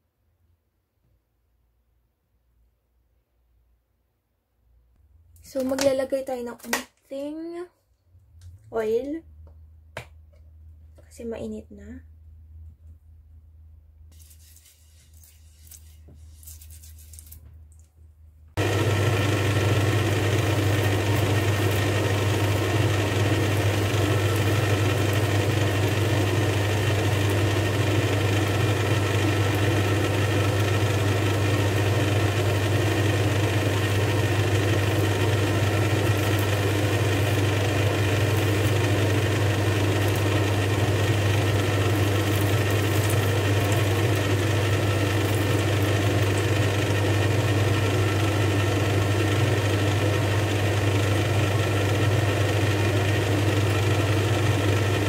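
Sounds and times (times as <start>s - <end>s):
steady machine hum: 18.6s - 55.0s.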